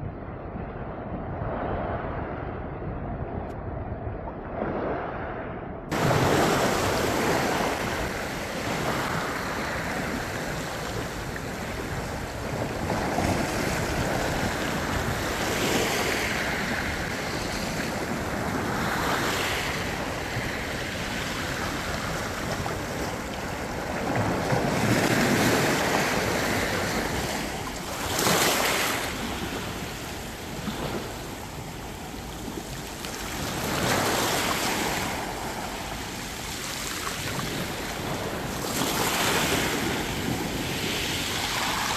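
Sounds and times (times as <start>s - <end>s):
small waves washing over rocks: 5.9s - 41.9s.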